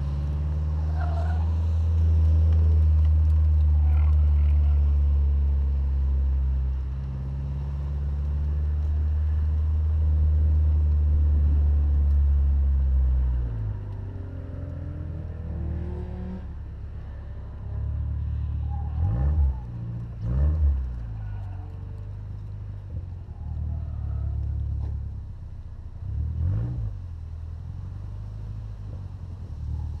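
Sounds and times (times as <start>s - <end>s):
car engine running low: 0.0s - 30.0s.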